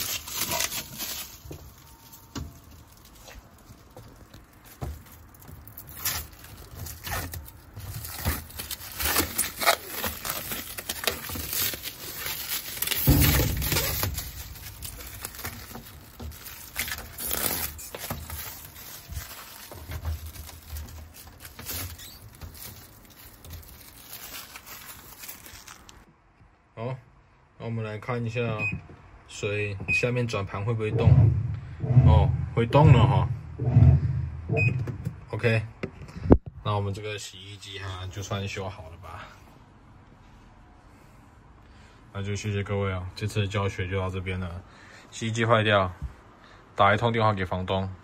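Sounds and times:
plastic film crackling: 0:00.0 - 0:26.1
dull bump: 0:30.9 - 0:35.2.

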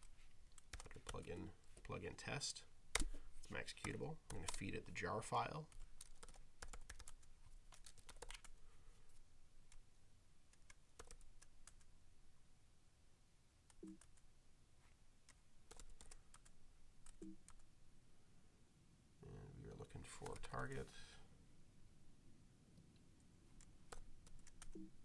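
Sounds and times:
faint keyboard typing: 0:00.0 - 0:02.0, 0:02.9 - 0:05.0, 0:05.6 - 0:11.9, 0:13.6 - 0:14.3, 0:15.2 - 0:17.7, 0:20.0 - 0:20.9, 0:22.8 - 0:25.0.

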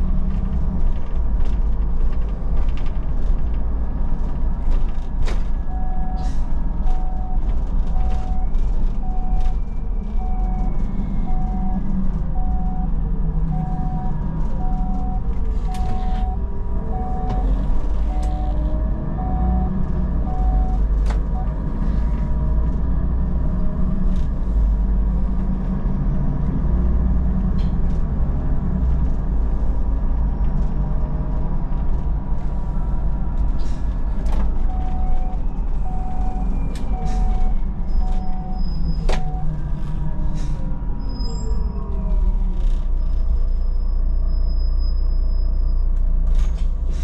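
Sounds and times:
bus engine droning: 0:00.0 - 0:47.0
electronic beeps: 0:13.5 - 0:16.4, 0:17.0 - 0:17.5, 0:34.7 - 0:39.5.

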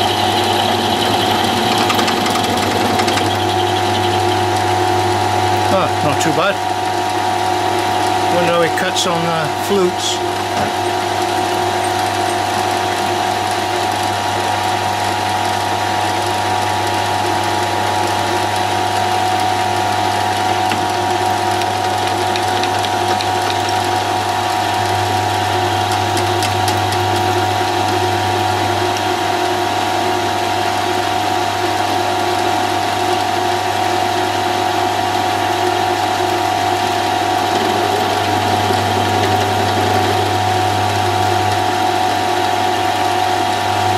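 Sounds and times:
end mill cutting aluminium: 0:00.0 - 0:06.3, 0:35.9 - 0:42.5
milling machine whining: 0:00.0 - 0:15.3, 0:34.6 - 0:43.9.

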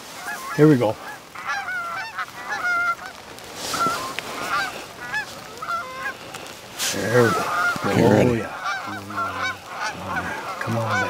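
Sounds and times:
geese honking: 0:00.1 - 0:11.0.

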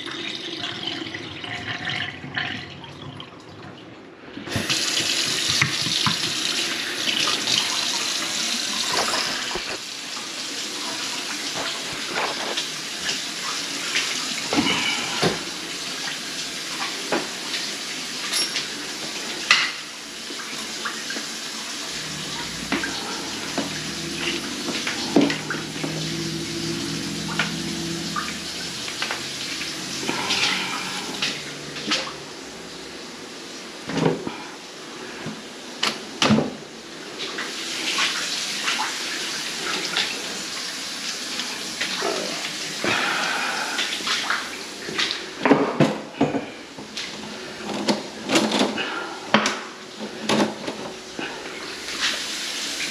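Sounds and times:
water running from faucet: 0:00.0 - 0:03.7, 0:04.4 - 0:52.9
low hum: 0:21.9 - 0:33.1.

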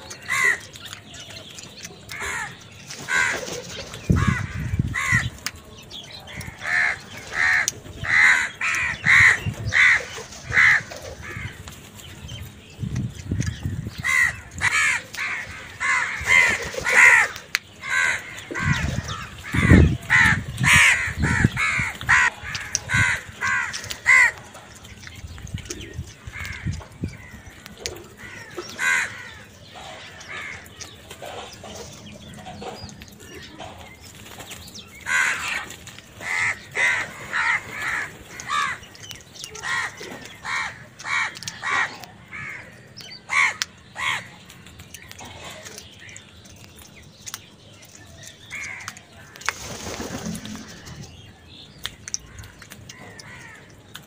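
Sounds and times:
crows cawing: 0:00.1 - 0:00.7, 0:02.1 - 0:05.3, 0:06.3 - 0:11.6, 0:13.7 - 0:24.6, 0:26.2 - 0:31.4, 0:35.0 - 0:44.3, 0:48.4 - 0:49.5, 0:52.2 - 0:53.7.

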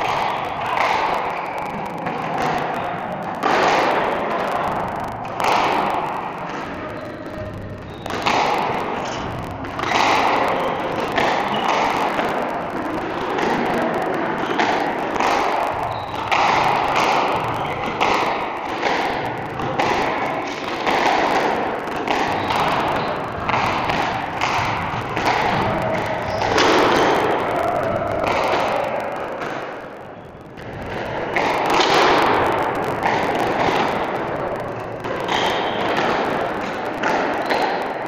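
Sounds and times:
squash ball hit by rackets: 0:14.4 - 0:27.2, 0:30.9 - 0:32.4.

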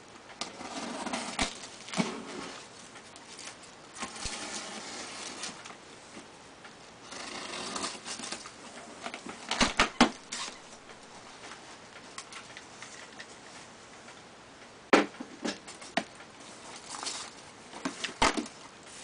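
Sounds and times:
sharp knocks and cracks: 0:14.9 - 0:16.2, 0:17.8 - 0:18.6
rustling of packing peanuts: 0:16.4 - 0:19.0.

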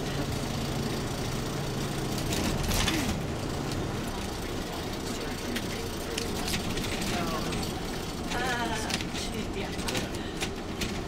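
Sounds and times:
bus engine and road hum: 0:00.0 - 0:11.0.

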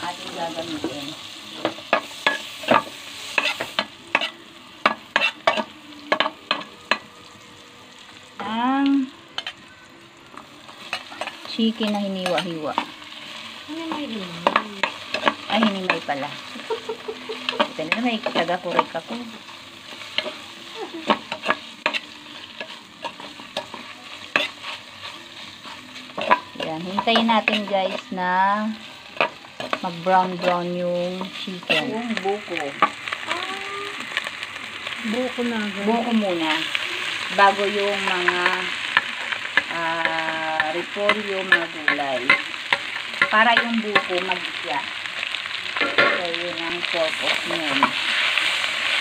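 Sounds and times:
onions sizzling in butter: 0:00.0 - 0:49.0
metal spatula scraping pot: 0:21.1 - 0:28.1, 0:31.2 - 0:32.0.

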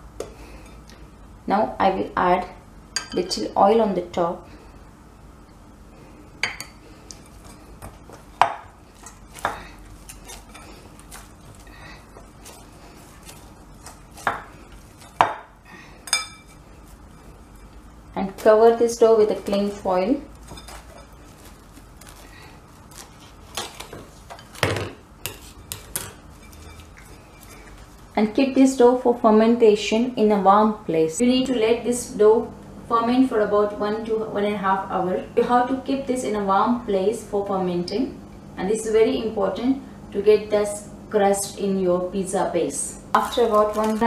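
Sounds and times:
cling film crinkling: 0:19.4 - 0:24.6, 0:43.2 - 0:44.0.

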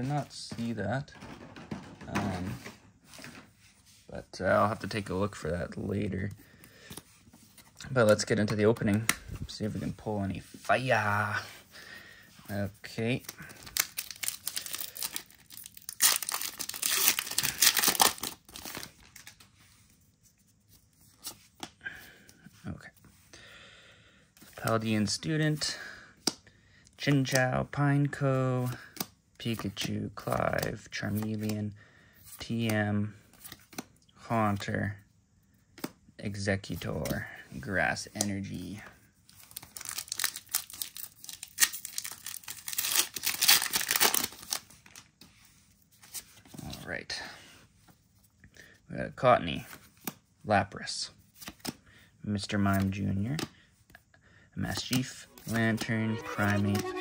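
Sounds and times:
faint rustling of cards: 0:00.0 - 0:57.0
foil wrapper crinkling and tearing: 0:13.4 - 0:19.4, 0:39.5 - 0:45.0.

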